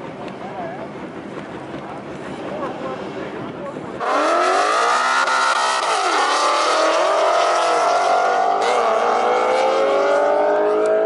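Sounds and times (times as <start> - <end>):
car engines revving hard: 4.0 - 11.0.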